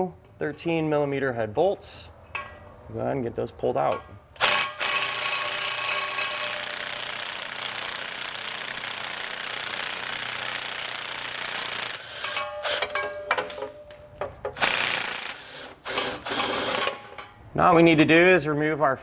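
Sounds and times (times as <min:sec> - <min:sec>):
impact wrench hammering: 0:04.4 - 0:17.4.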